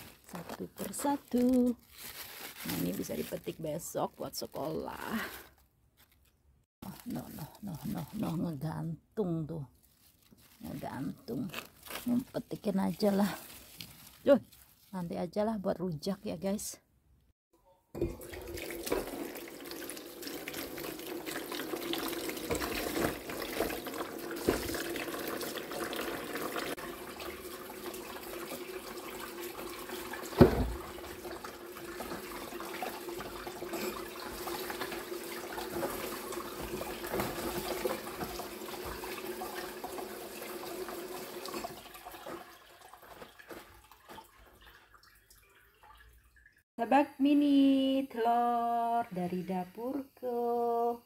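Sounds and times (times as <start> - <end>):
tap water splashing on vegetables: 18.0 - 46.5.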